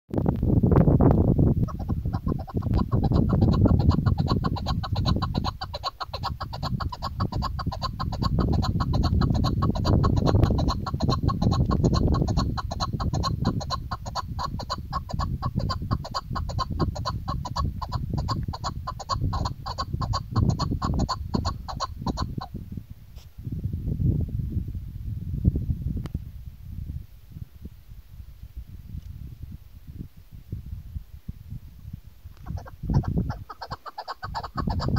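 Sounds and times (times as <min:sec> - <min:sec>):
wind noise on microphone: 0:00.1 - 0:34.9
partridge clucking calls: 0:01.6 - 0:22.5, 0:32.4 - 0:34.9.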